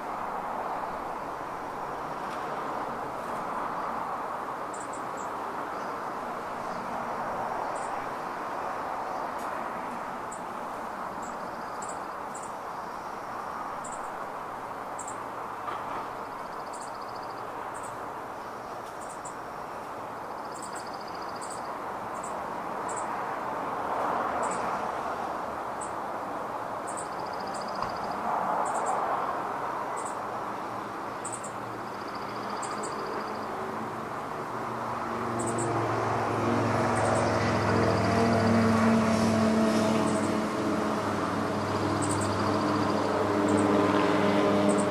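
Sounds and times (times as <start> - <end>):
road traffic hum: 0.0 - 44.9
small birds chirping: 4.7 - 6.0, 16.2 - 18.0, 18.7 - 19.5, 20.4 - 23.2, 26.9 - 29.0, 29.9 - 30.2, 31.1 - 33.5, 42.0 - 42.9
vehicle engine hum: 31.3 - 44.9.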